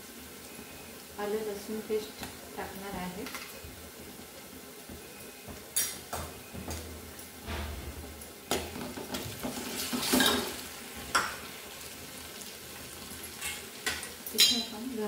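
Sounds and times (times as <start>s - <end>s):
faint sizzle of frying oil: 0.0s - 15.0s.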